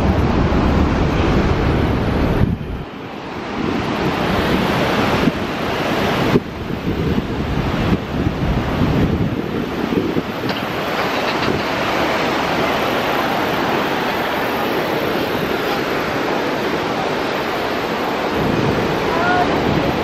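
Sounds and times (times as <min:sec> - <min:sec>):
waterfall roaring: 0:00.0 - 0:20.0.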